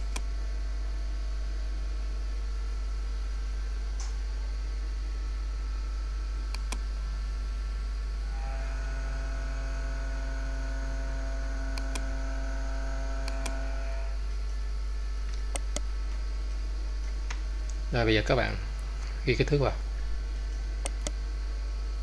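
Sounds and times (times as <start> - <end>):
electrical mains hum: 0.0 - 22.0
faint pitched whine: 2.2 - 16.2
computer mouse clicks: 6.5 - 6.8, 11.7 - 12.1, 13.2 - 13.6, 15.3 - 15.9, 20.8 - 21.2.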